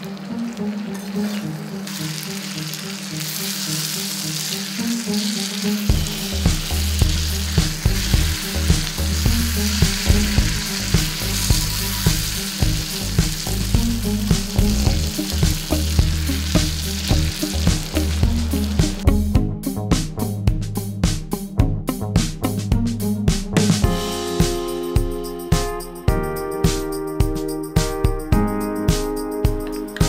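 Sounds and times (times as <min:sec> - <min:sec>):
chicken sizzling in oil: 0:00.0 - 0:19.0
spatula scraping a wok: 0:00.7 - 0:13.4
background music with bass: 0:04.8 - 0:30.0.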